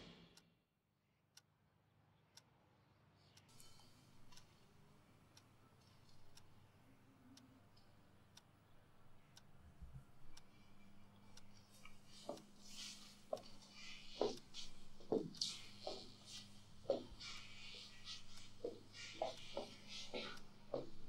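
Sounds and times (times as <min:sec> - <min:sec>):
faint low hum: 0:02.1 - 0:21.0
clock ticking: 0:09.2 - 0:21.0
soft rustle: 0:10.3 - 0:21.0.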